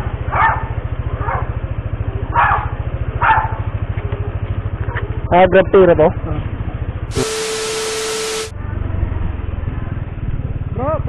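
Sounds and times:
motorcycle engine idling: 0.0 - 8.4
dog barking: 0.3 - 1.5, 2.3 - 3.6.

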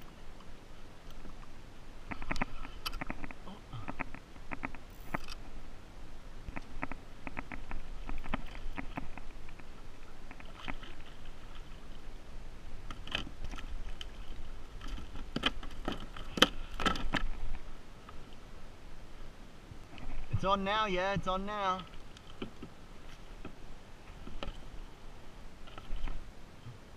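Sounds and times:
water splashing: 6.5 - 17.7.

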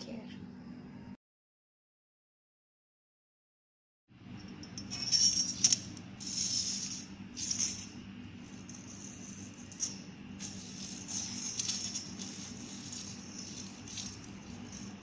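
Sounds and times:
steady low hum: 4.1 - 15.0
faint rustling and scraping: 4.8 - 15.0.

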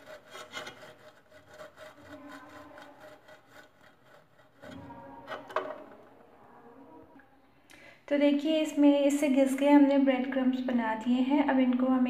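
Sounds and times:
bread grating on metal grater: 0.0 - 5.8.

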